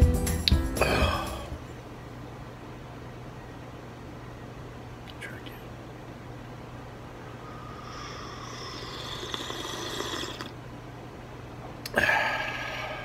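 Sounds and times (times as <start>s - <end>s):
slurping sip from a mug: 8.4s - 10.5s.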